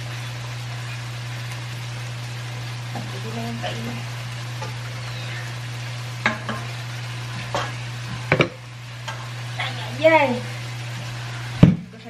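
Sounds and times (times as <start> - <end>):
food sizzling in a pan: 0.0 - 12.0
cookware knocks: 8.3 - 8.6.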